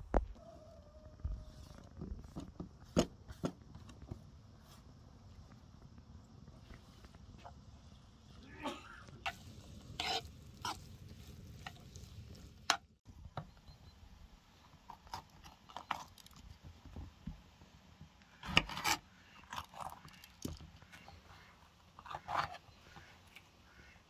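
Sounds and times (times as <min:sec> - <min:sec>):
metal spoon scraping frying pan: 0:09.3 - 0:10.9.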